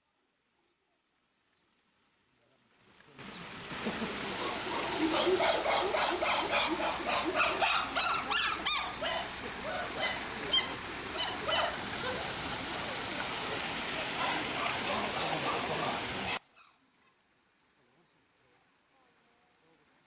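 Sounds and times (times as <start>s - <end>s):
steady rushing noise: 3.3s - 16.4s
chimpanzees hooting and screaming: 3.8s - 13.0s, 14.0s - 16.4s.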